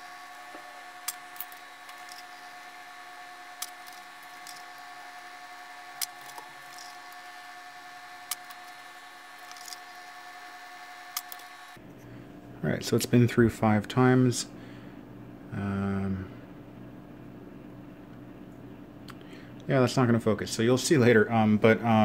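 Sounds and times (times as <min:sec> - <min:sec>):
laminator roller motor whine: 0:00.0 - 0:11.9.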